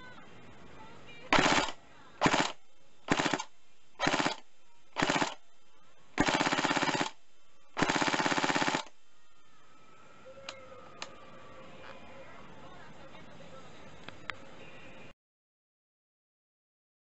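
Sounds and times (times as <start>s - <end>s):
airsoft rifle firing bursts: 1.3s - 5.4s, 6.2s - 7.2s, 7.8s - 9.0s.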